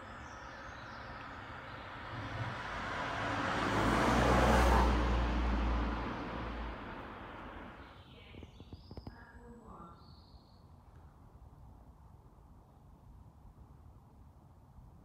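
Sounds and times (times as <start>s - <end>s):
vehicle passing: 0.0s - 8.1s.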